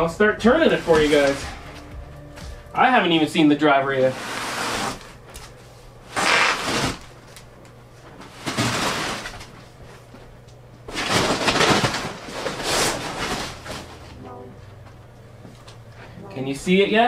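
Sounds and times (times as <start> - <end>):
foam packaging rustling: 0.6 - 1.9, 4.0 - 7.4, 8.2 - 9.9, 10.9 - 14.1
wooden cabinet scraping: 0.6 - 1.9, 4.0 - 5.2, 6.1 - 7.1.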